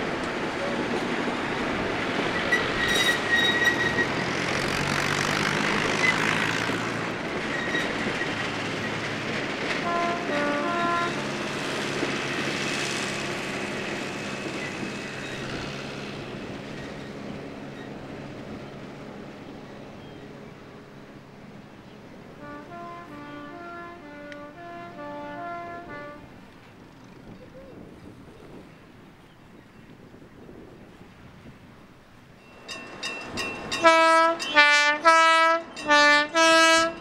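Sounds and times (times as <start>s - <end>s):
diesel train rumbling on track: 0.0s - 37.0s
high wheel squeaks: 2.2s - 9.8s, 12.0s - 18.8s, 32.4s - 34.7s
train horn stepped notes: 9.7s - 11.6s, 22.4s - 26.5s, 33.7s - 37.0s.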